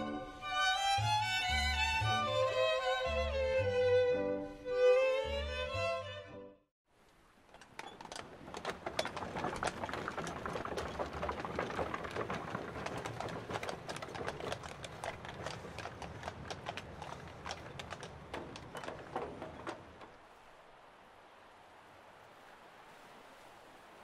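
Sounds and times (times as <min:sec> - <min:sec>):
hooves clip-clopping: 0:07.0 - 0:20.6
wheels clattering on pavement: 0:07.3 - 0:20.2.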